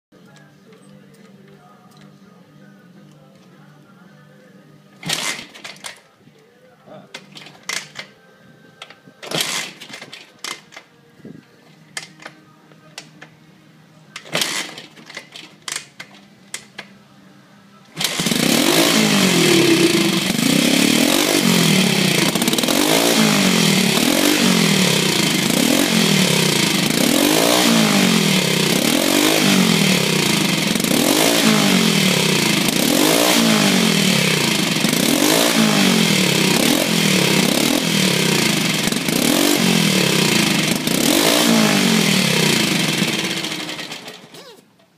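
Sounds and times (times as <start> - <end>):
motorcycle engine revving: 18.0 - 44.7.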